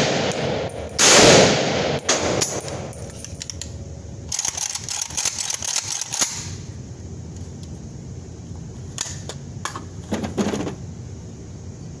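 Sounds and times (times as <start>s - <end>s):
gunshots: 0.0s - 2.9s.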